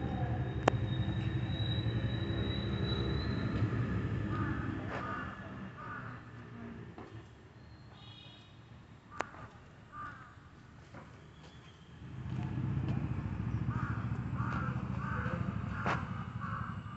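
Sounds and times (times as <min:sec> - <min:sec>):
loud low rumble: 0:12.2 - 0:16.9.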